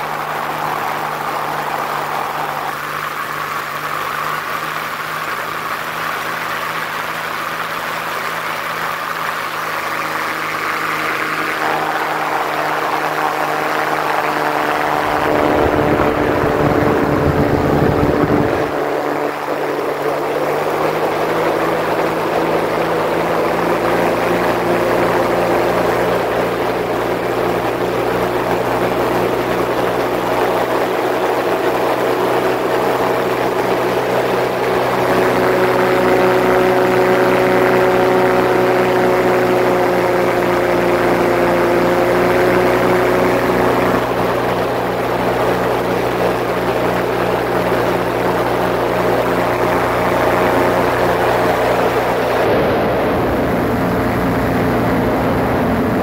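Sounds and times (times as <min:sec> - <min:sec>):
propeller aircraft engine: 0:00.0 - 0:56.0
wind rush: 0:10.8 - 0:38.8, 0:41.7 - 0:56.0.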